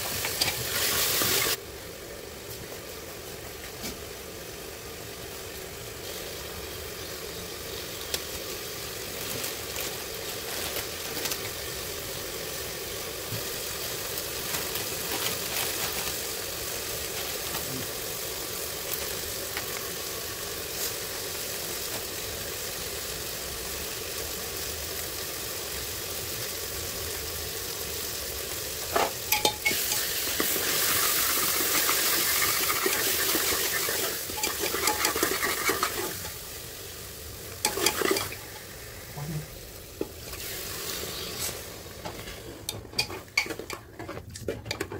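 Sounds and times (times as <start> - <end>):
food sizzling in a pan: 0.0 - 44.1
spoon stirring and tapping pan: 29.0 - 30.6, 32.3 - 36.1, 37.6 - 38.4, 42.6 - 44.9.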